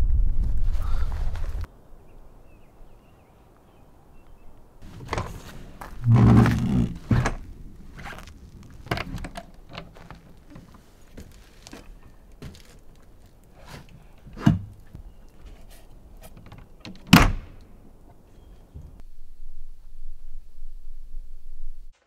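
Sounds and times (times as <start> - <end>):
door shutting with thud: 16.9 - 17.6.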